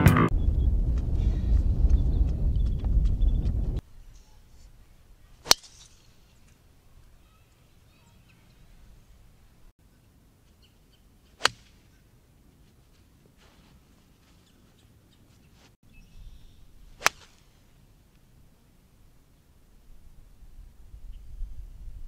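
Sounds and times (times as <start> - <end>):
golf club striking ball: 5.4 - 6.0, 11.4 - 11.9, 17.0 - 17.4.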